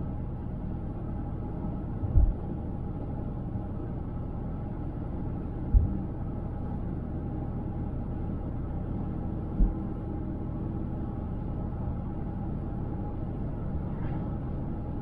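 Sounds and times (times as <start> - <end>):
car road and tyre noise: 0.0 - 15.0
low thump: 2.2 - 2.4, 5.7 - 6.0.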